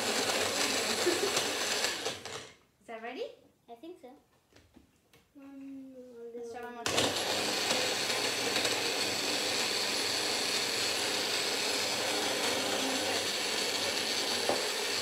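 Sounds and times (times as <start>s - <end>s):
blender running: 0.0s - 2.6s, 6.9s - 15.0s.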